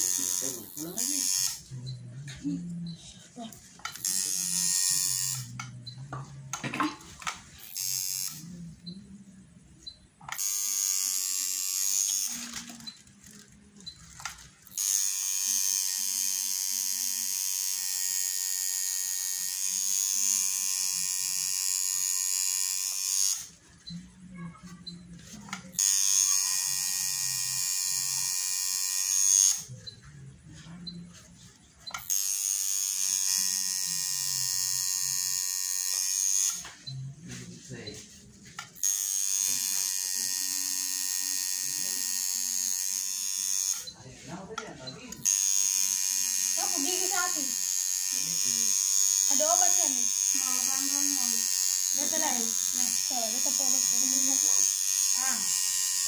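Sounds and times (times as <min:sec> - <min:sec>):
electric tattoo machine buzzing: 0:00.0 - 0:02.0, 0:03.5 - 0:06.3, 0:07.2 - 0:09.4, 0:10.2 - 0:23.6, 0:25.0 - 0:29.9, 0:31.8 - 0:37.0, 0:37.6 - 0:44.0, 0:45.0 - 0:56.0.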